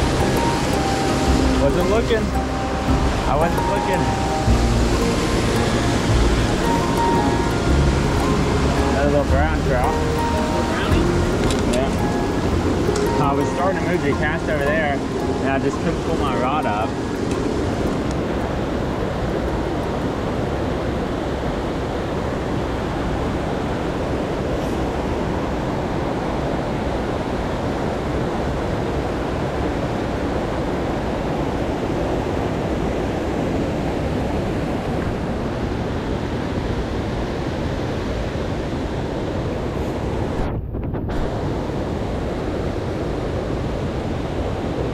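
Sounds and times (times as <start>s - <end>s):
creek rushing over rocks: 0.0s - 28.4s.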